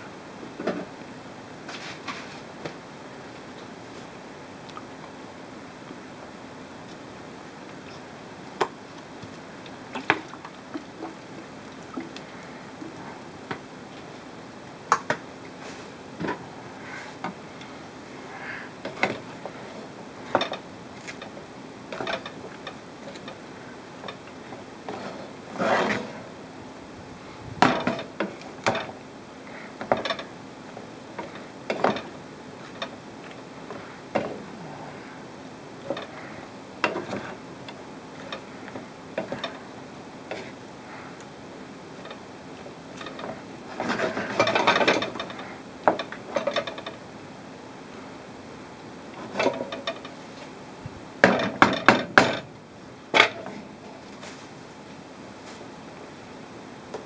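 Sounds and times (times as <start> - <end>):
wooden spatula scraping frying pan: 24.9 - 26.3.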